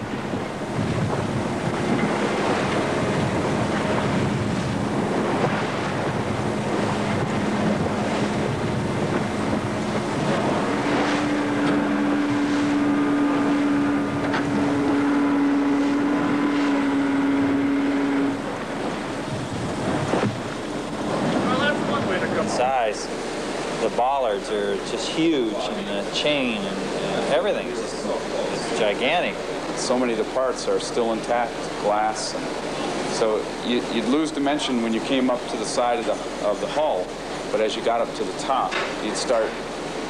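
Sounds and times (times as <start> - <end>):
motor droning: 0.0 - 23.9
wind buffeting microphone: 0.0 - 26.6
choppy sea: 0.0 - 40.0.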